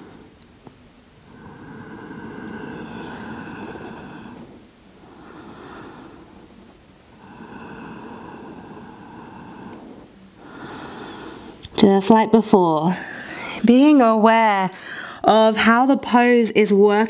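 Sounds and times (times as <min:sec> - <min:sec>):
slow deep breathing: 0:00.0 - 0:11.7, 0:13.0 - 0:13.7, 0:14.8 - 0:15.2.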